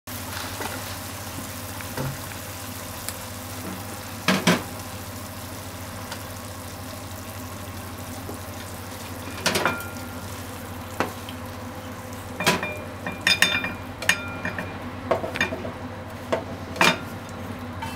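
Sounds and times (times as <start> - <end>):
stir-fry sizzling in a frying pan: 0.1 - 17.9.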